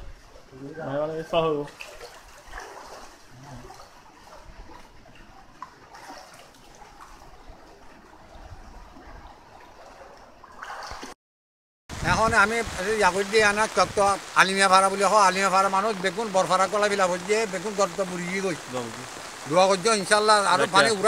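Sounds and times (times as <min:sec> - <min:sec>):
floodwater sloshing around legs: 0:01.7 - 0:11.2.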